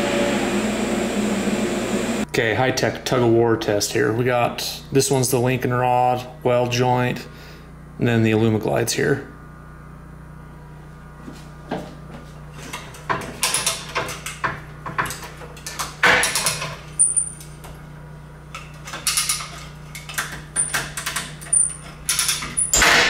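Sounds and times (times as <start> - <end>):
ratchet clicking and rattling: 12.7 - 17.5, 18.5 - 22.9.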